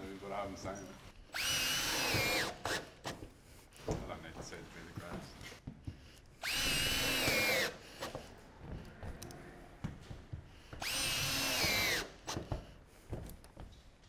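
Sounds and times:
cordless drill whining: 0:00.0 - 0:03.3, 0:06.2 - 0:08.3, 0:10.8 - 0:12.7.

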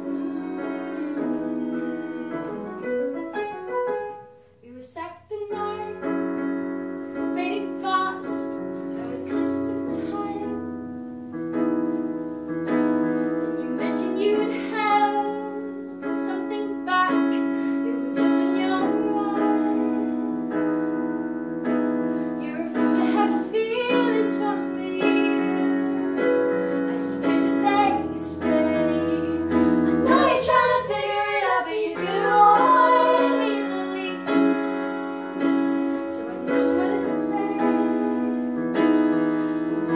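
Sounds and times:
women singing in harmony: 0:00.0 - 0:02.9, 0:07.4 - 0:10.6, 0:13.5 - 0:21.0, 0:22.4 - 0:39.9
digital piano chords: 0:00.0 - 0:04.8, 0:05.4 - 0:39.9
woman singing: 0:04.6 - 0:06.1, 0:07.3 - 0:10.6, 0:13.6 - 0:20.5, 0:22.4 - 0:34.8, 0:36.0 - 0:38.5.

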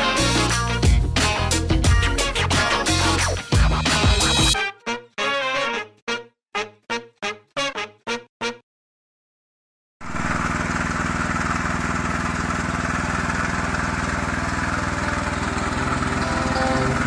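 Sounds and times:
tiller petrol engine running: 0:10.0 - 0:17.0.

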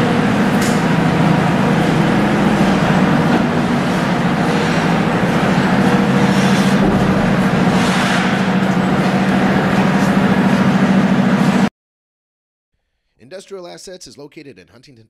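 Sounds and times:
machine hum with hiss: 0:00.0 - 0:11.7.

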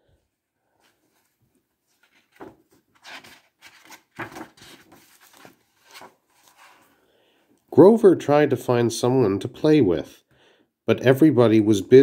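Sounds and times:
book pages turning: 0:00.9 - 0:07.0.

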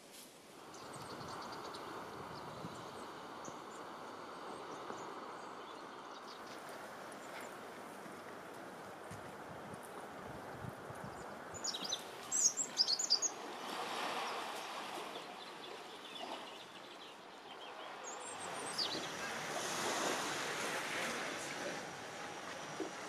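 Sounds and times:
sea waves washing ashore: 0:00.0 - 0:23.0
small bird chirping: 0:11.1 - 0:13.4.

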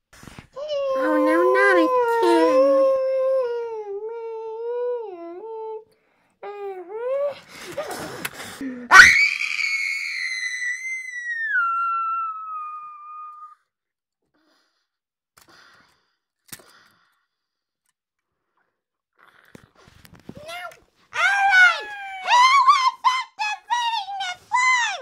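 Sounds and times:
person moaning: 0:00.8 - 0:05.8
high-pitched scream sliding down: 0:08.9 - 0:13.5.

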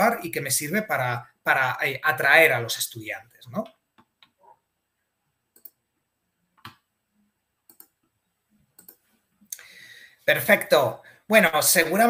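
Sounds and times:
computer mouse clicks: 0:05.5 - 0:05.8, 0:07.7 - 0:09.1.

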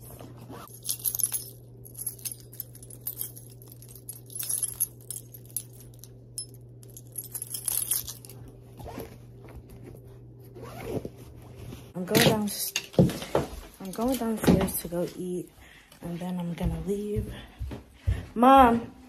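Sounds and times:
steady low hum: 0:00.0 - 0:19.0
keys jangling on a keyring: 0:00.6 - 0:08.5.

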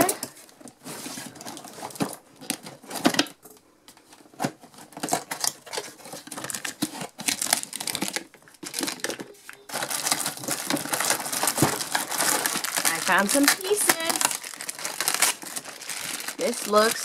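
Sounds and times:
packaging crinkling: 0:04.0 - 0:17.0.

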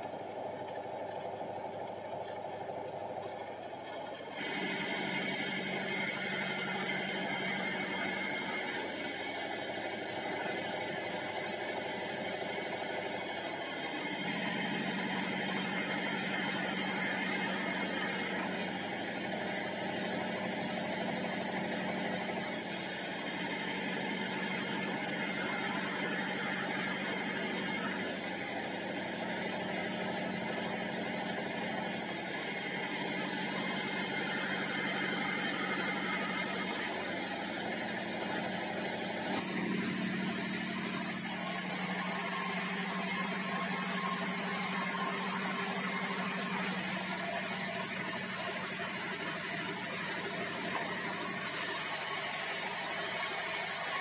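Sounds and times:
band saw drone and hum: 0:00.0 - 0:23.7, 0:31.0 - 0:54.0.

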